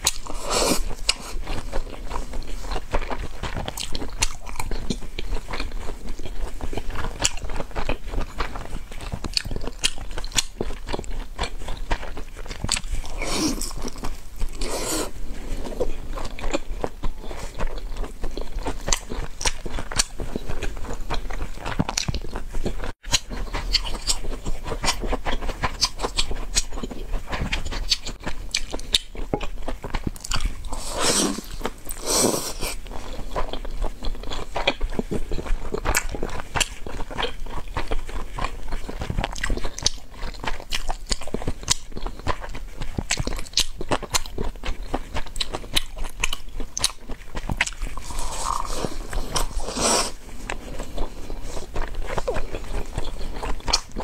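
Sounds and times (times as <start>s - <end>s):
person chewing and biting food: 0.0s - 54.0s.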